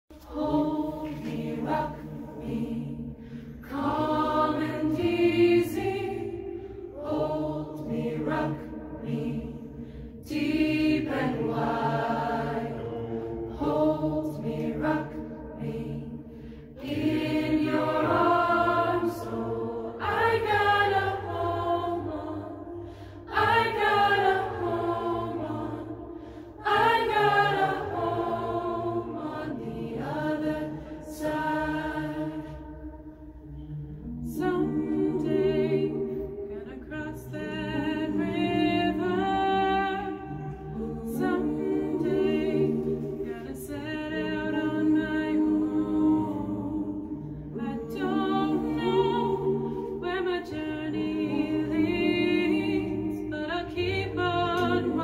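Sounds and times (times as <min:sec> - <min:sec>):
choir singing a cappella: 0:00.1 - 0:55.0.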